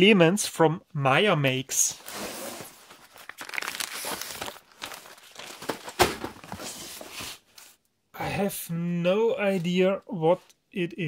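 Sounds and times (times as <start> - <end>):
paper and cardboard crinkling: 2.0 - 7.8.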